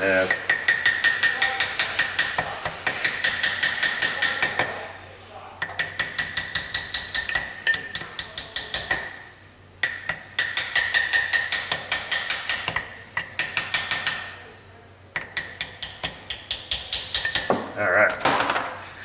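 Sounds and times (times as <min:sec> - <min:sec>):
small hammer tapping metal: 0:00.3 - 0:04.8, 0:05.6 - 0:09.2, 0:09.8 - 0:14.3, 0:15.2 - 0:17.7.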